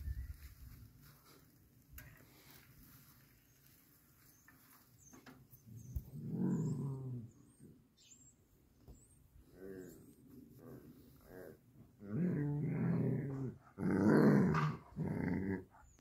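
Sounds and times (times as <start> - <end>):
faint clicks and rustling: 0.7 - 6.1
dog growling: 6.1 - 7.4, 10.7 - 15.9.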